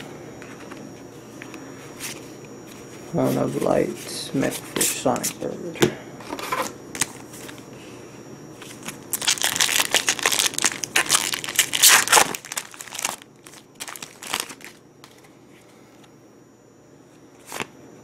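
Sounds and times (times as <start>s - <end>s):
foil wrapper crinkling: 8.6s - 15.3s.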